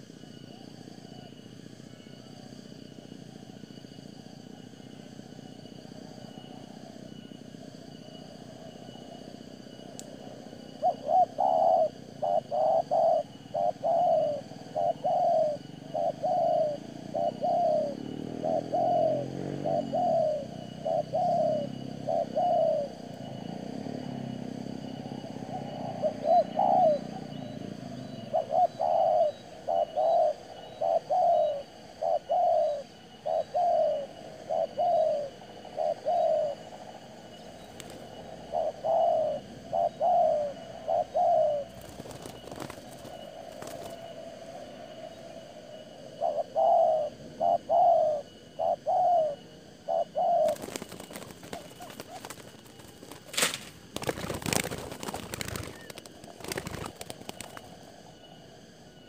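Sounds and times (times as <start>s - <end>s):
doves cooing: 10.2s - 59.0s
wings flapping: 37.7s - 38.1s, 41.7s - 44.0s, 50.4s - 57.8s.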